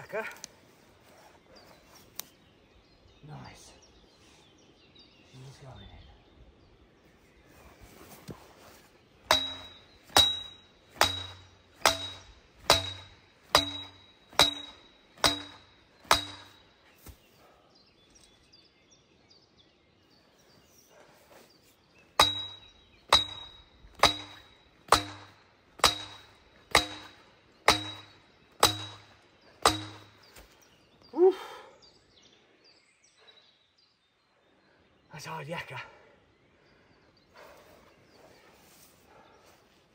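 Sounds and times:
sledgehammer clanging on steel tube: 0:09.3 - 0:16.7, 0:22.2 - 0:30.3.

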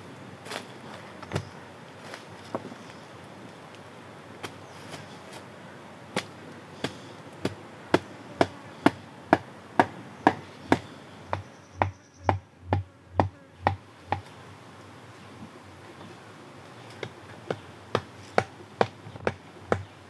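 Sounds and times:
wooden mallet pounding stake: 0:09.3 - 0:14.2, 0:17.0 - 0:19.9.

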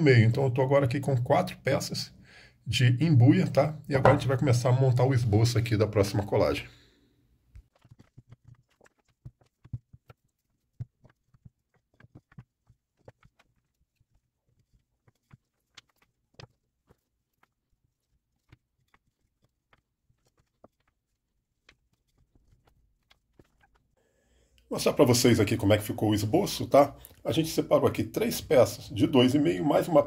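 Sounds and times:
wooden strips clicking and knocking: 0:07.5 - 0:24.0.

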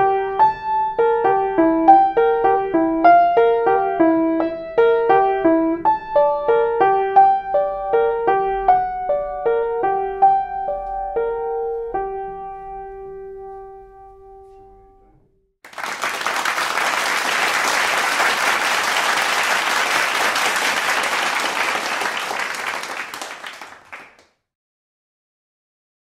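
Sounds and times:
piano notes ringing: 0:00.0 - 0:15.1
applause: 0:15.7 - 0:24.4.

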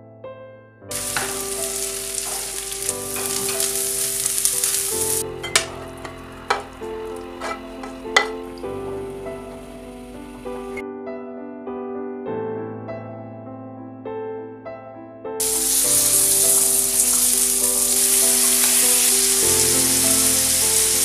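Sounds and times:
soft keyboard music: 0:00.0 - 0:21.0
onions sizzling in a frying pan: 0:00.9 - 0:10.8, 0:15.4 - 0:21.0
wooden spoon stirring: 0:01.0 - 0:08.6.

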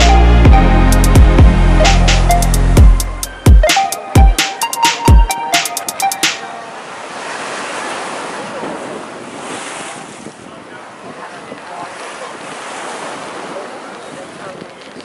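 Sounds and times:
ocean surf on rocks: 0:05.5 - 0:15.0
wind on microphone: 0:08.5 - 0:15.0.

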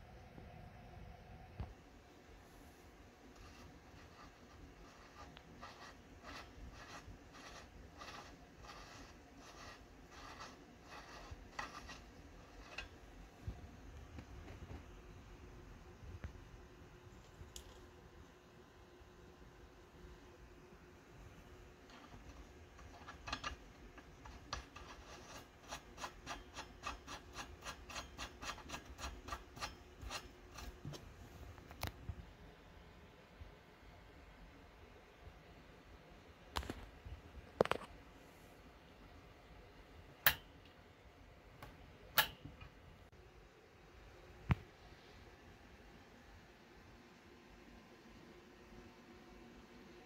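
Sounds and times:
soft rhythmic rubbing: 0:01.7 - 0:16.5, 0:20.1 - 0:32.4
nut threads rasping and ticking: 0:03.4 - 0:13.2, 0:21.7 - 0:31.0
sharp click: 0:42.2 - 0:42.5.

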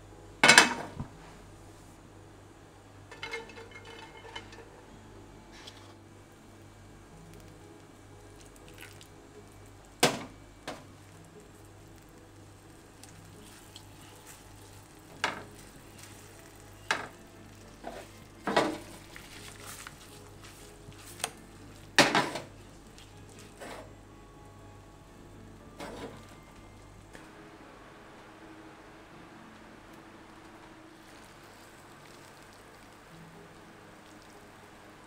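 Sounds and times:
faint steady sizzle: 0:00.0 - 0:35.0
wooden spatula scraping frying pan: 0:03.1 - 0:04.9, 0:23.4 - 0:23.9.

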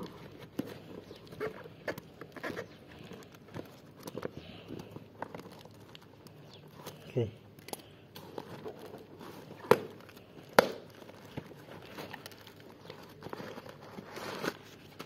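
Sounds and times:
newspaper crinkling: 0:00.0 - 0:07.0, 0:08.2 - 0:15.0
tape and cardboard tearing: 0:08.2 - 0:15.0.

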